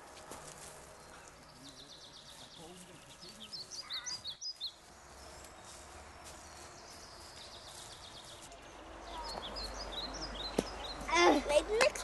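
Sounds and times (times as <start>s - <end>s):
faint forest ambience: 0.0s - 11.2s
bird chirps: 1.0s - 11.1s.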